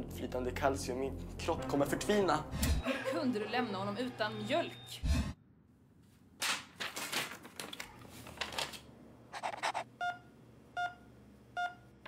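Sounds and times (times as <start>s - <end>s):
rustling and handling noise: 6.0s - 9.8s.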